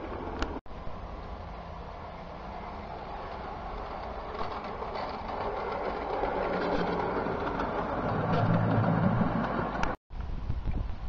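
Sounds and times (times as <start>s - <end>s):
wheels ticking over rail joints: 1.2s - 10.0s
model train motor rumbling: 2.4s - 10.0s.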